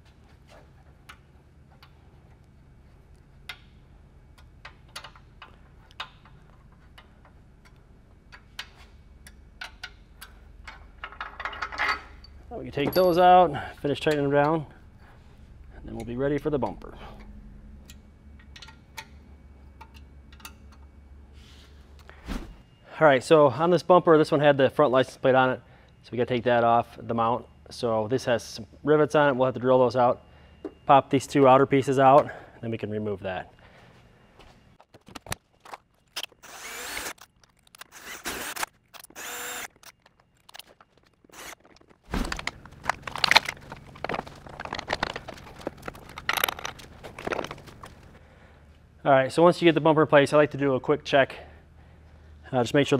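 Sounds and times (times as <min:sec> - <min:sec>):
low steady hum: 0:00.0 - 0:52.9
metal parts clattering: 0:10.6 - 0:13.4, 0:39.7 - 0:48.2
light clicks and taps of tools: 0:17.8 - 0:19.2, 0:19.8 - 0:20.9
power drill whining: 0:36.3 - 0:37.2, 0:37.8 - 0:39.8, 0:41.3 - 0:41.8.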